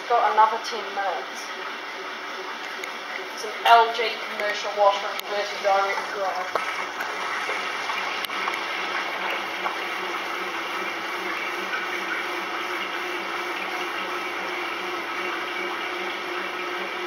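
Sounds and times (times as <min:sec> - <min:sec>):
washer spinning with hum: 0:00.0 - 0:17.0.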